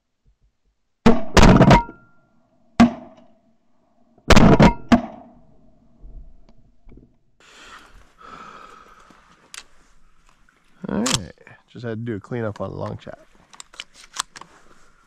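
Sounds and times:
shotgun blasts: 0:01.1 - 0:02.0, 0:04.3 - 0:05.3.

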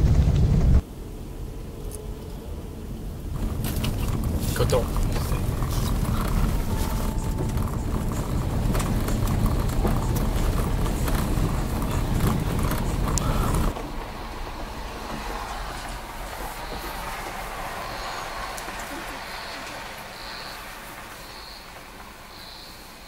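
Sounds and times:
car cabin rumble: 0:03.2 - 0:17.1
steady hiss: 0:13.1 - 0:23.0.

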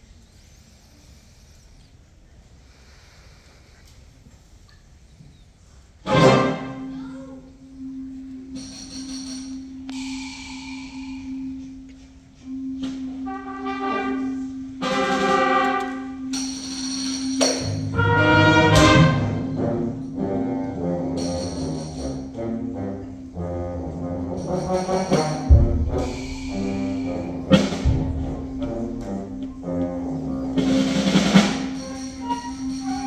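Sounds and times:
concert band playing: 0:17.3 - 0:22.0, 0:22.8 - 0:33.0.

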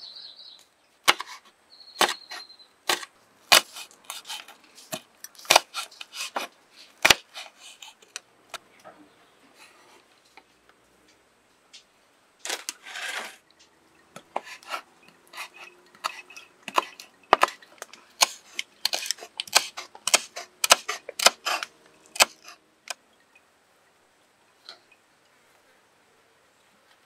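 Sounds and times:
scraping rustle: 0:12.4 - 0:13.5
knife chopping on wooden board: 0:18.2 - 0:21.5.

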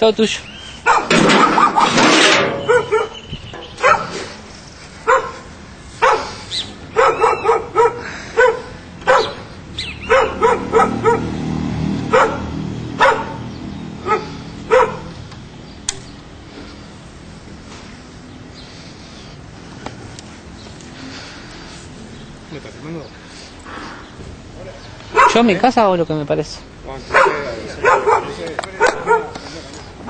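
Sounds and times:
dog barking: 0:00.8 - 0:02.0, 0:02.6 - 0:03.2, 0:03.8 - 0:04.3, 0:05.0 - 0:11.4, 0:12.1 - 0:15.1, 0:25.1 - 0:25.5, 0:27.1 - 0:29.4
loud rustling: 0:00.9 - 0:06.2.

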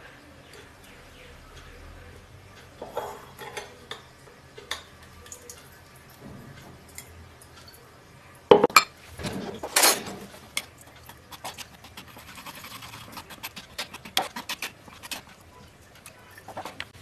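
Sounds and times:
spoon scraping metal strainer: 0:11.0 - 0:15.4.

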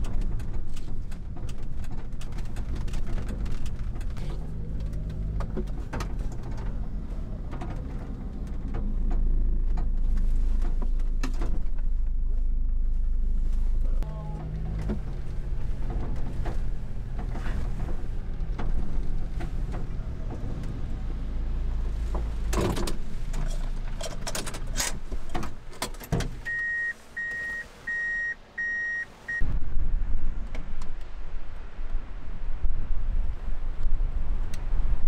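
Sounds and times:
truck engine running: 0:00.0 - 0:29.4
electronic warning beeps: 0:26.5 - 0:29.4
wind on microphone: 0:29.4 - 0:35.0.

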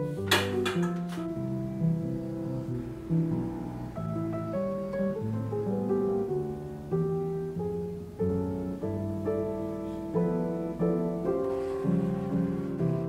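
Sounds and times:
calm piano music: 0:00.0 - 0:13.0.

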